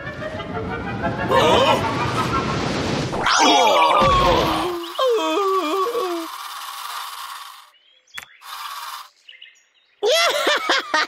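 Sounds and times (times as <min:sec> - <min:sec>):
moaning cartoon voice: 0:03.2 - 0:06.4
sharp click: 0:08.2 - 0:08.7.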